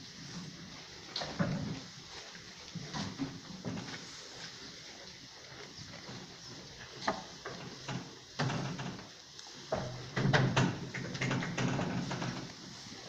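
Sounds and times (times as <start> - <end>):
knocks and clatter: 9.7 - 12.5.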